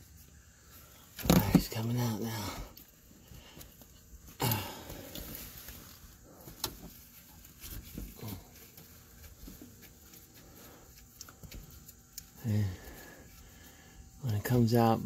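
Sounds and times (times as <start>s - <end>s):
short rustle: 2.9s - 13.9s.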